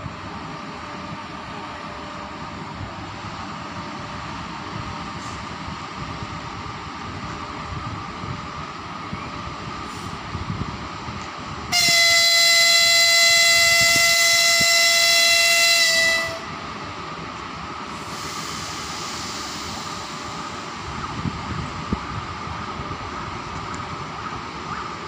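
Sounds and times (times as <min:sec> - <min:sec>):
locomotive whistle: 0:11.7 - 0:16.6.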